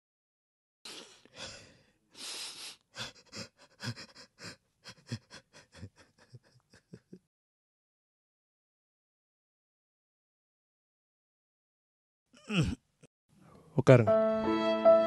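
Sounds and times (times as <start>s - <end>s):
man crying: 2.9s - 7.2s, 12.4s - 12.8s.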